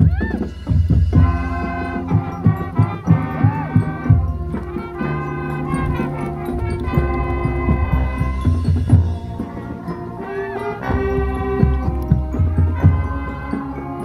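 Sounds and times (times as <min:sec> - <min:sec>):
drum hits: 0:00.0 - 0:09.7
brass chords: 0:00.0 - 0:14.0.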